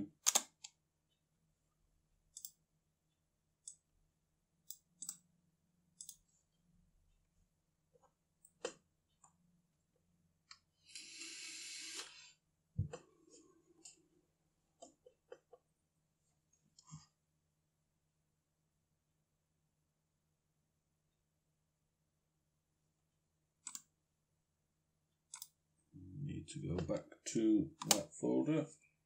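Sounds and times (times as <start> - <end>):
short hiss: 10.9 - 12.2
faint clicks and taps: 12.8 - 14.0, 14.7 - 15.7, 26.7 - 28.1.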